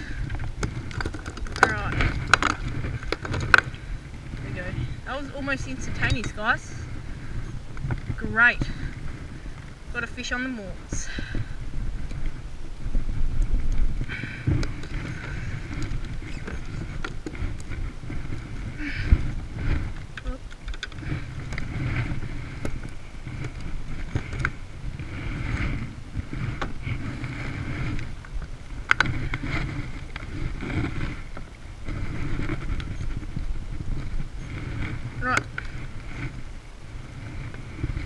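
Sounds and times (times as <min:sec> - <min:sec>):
rustling: 0:00.0 - 0:38.0
wind: 0:00.0 - 0:38.0
water lapping on plastic kayak: 0:00.1 - 0:38.0.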